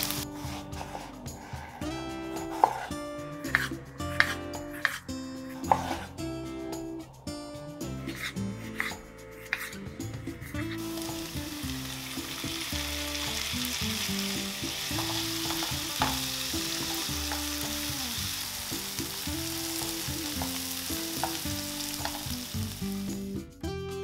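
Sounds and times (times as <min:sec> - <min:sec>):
vegetables sizzling in frying pan: 0:00.0 - 0:00.2, 0:10.8 - 0:23.2
wooden spatula scraping pan: 0:00.2 - 0:01.8, 0:03.5 - 0:06.2.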